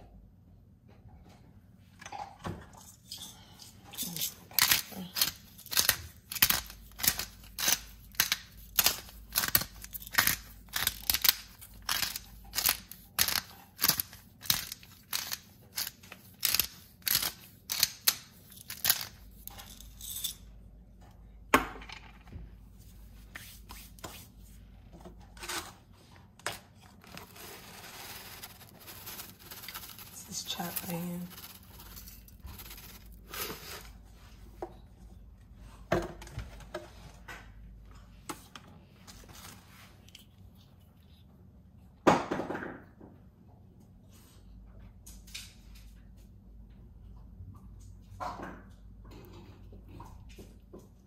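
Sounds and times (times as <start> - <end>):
spice container shaking: 4.0 - 20.3, 27.1 - 33.9.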